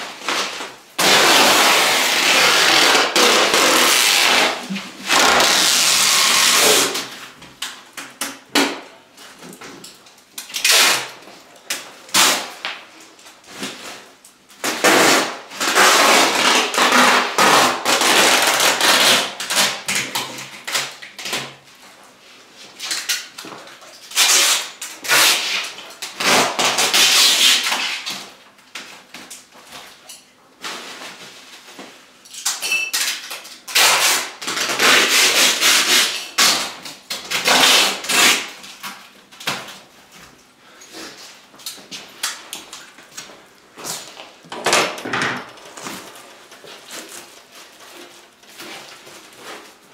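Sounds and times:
packing tape pulled off roll: 0:00.0 - 0:08.8, 0:10.4 - 0:21.7, 0:22.7 - 0:30.0, 0:32.3 - 0:39.9.

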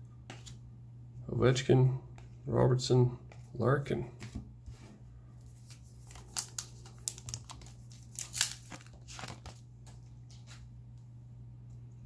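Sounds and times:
plastic wrapper tearing and crinkling: 0:05.6 - 0:09.6.

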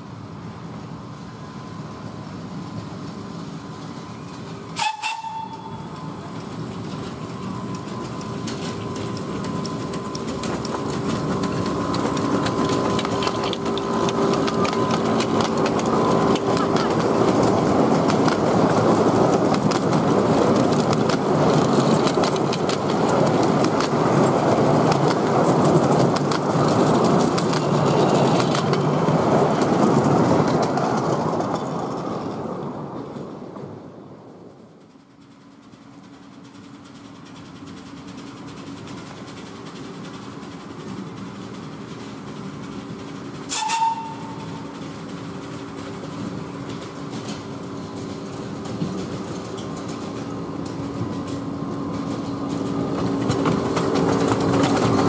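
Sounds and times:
locomotive hum: 0:00.0 - 0:55.0
wheels clattering on rails: 0:02.6 - 0:55.0
train horn toot: 0:04.8 - 0:06.0, 0:43.5 - 0:44.6.

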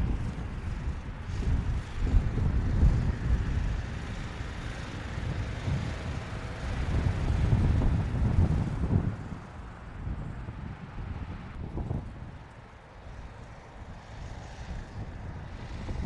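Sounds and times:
diesel engine rumbling: 0:00.0 - 0:16.0.

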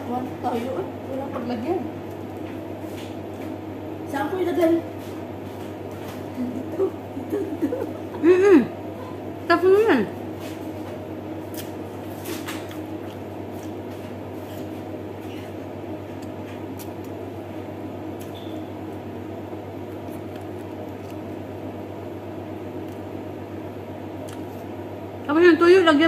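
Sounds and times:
low room hum: 0:00.0 - 0:26.0
eating and chewing sounds: 0:09.8 - 0:21.9, 0:22.7 - 0:23.3, 0:24.1 - 0:24.8.

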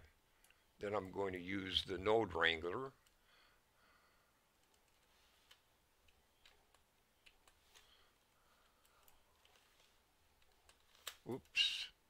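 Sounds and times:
computer keys and mouse clicks: 0:04.5 - 0:07.8, 0:08.6 - 0:11.6.

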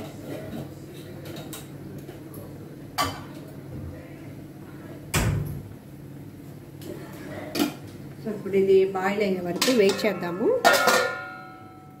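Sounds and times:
kitchen utensils knocking: 0:09.5 - 0:11.8.

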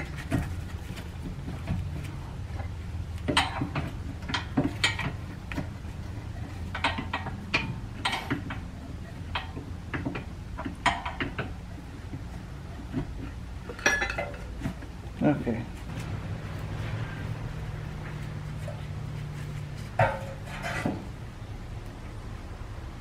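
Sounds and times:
steady low hum: 0:00.0 - 0:23.0
metallic clinks and scrapes: 0:13.6 - 0:14.7, 0:16.7 - 0:21.1.

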